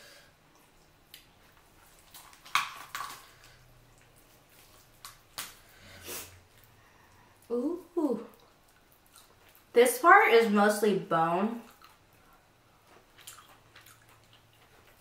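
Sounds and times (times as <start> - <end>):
wet tearing of meat: 1.2 - 5.7
bones snapping: 2.1 - 3.3, 5.0 - 5.6.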